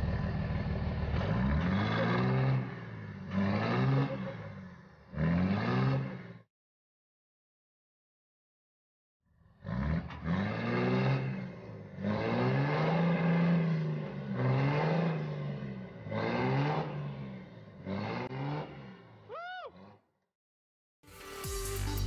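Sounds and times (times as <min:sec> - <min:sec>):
truck engine revving: 0:00.0 - 0:06.4, 0:09.6 - 0:20.0.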